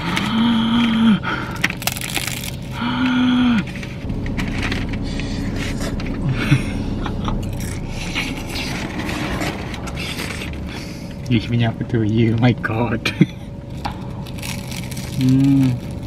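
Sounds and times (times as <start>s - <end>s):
pastry crackling and crunching: 0.0s - 5.0s, 13.7s - 16.0s
long hums: 2.4s - 16.0s.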